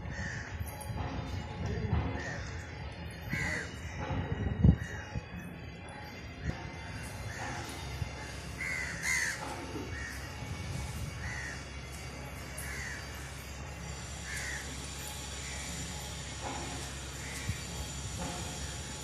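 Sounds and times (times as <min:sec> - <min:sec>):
crows cawing: 0:00.0 - 0:00.6, 0:02.2 - 0:04.1, 0:04.8 - 0:05.2, 0:06.7 - 0:11.7, 0:12.5 - 0:13.3, 0:14.1 - 0:16.0, 0:17.1 - 0:18.7.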